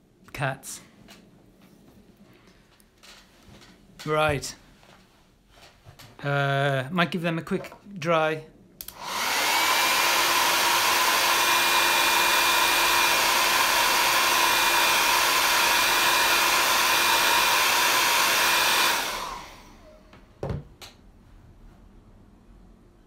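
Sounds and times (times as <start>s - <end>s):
hair dryer blowing: 8.8s - 20.2s.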